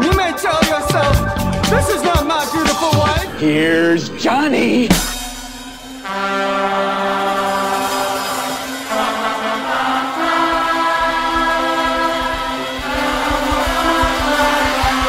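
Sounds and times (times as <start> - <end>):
slow held music chords: 0.8 - 5.6
low rumble: 1.0 - 2.1, 3.0 - 5.7.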